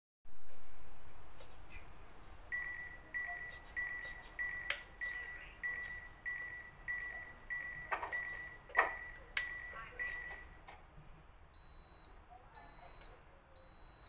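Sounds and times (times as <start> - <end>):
high electronic beeps: 2.5 - 10.6.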